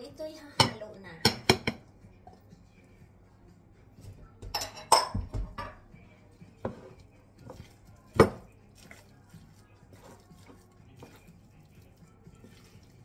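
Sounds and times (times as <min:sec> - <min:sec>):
glass bowls clinking: 0:04.5 - 0:05.8.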